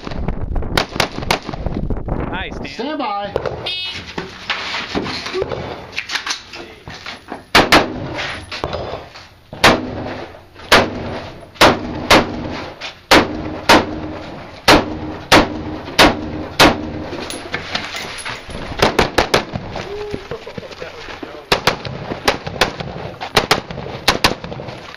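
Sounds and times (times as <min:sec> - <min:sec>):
rifle shots: 0:00.8 - 0:01.6, 0:07.5 - 0:08.2, 0:09.6 - 0:17.5, 0:18.7 - 0:19.6, 0:21.5 - 0:24.7.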